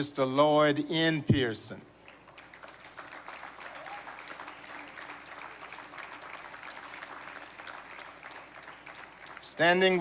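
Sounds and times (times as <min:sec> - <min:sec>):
light applause: 0:02.0 - 0:10.0.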